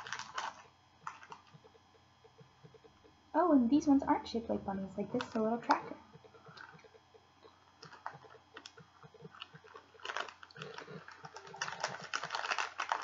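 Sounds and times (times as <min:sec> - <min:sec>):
faint chewing with wet clicks: 0:06.2 - 0:12.3.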